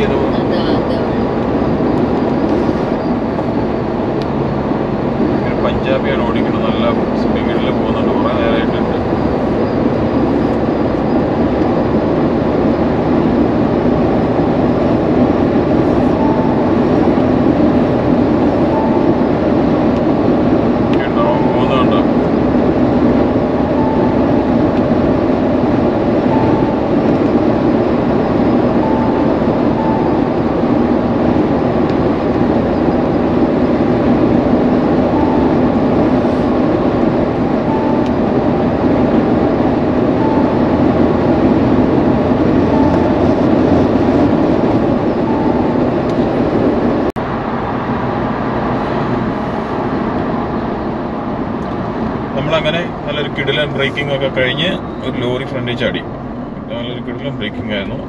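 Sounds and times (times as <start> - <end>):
car road and engine noise: 0.0 - 58.0
faint short beep: 16.1 - 17.2, 18.6 - 19.3, 26.3 - 27.3.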